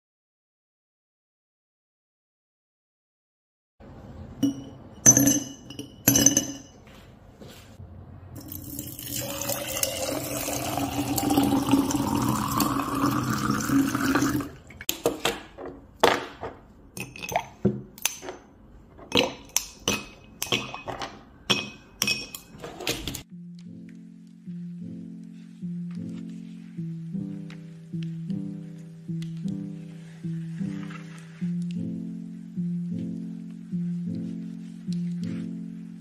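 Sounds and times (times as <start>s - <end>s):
water pouring into a glass jar: 8.4s - 14.8s.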